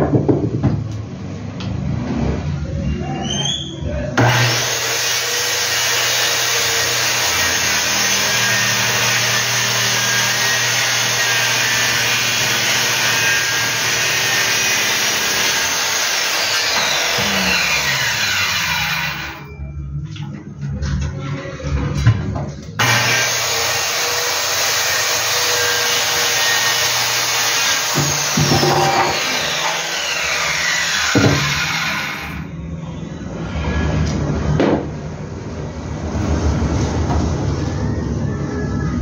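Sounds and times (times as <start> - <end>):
circular saw cutting wood: 4.2 - 19.5, 22.8 - 32.5
saw spinning down whine: 4.2 - 19.6, 22.8 - 32.5.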